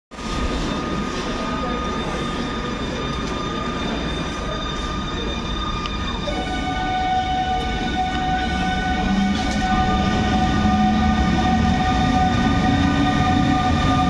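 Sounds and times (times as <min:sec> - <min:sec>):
train rolling rumble: 0:00.1 - 0:14.0
locomotive whining tones: 0:00.2 - 0:14.0.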